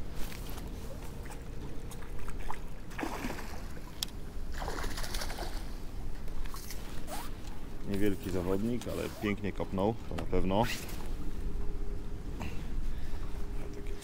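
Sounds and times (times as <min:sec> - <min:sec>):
fish splashing at water surface: 0:02.0 - 0:05.7
steady low rumble: 0:05.4 - 0:14.0.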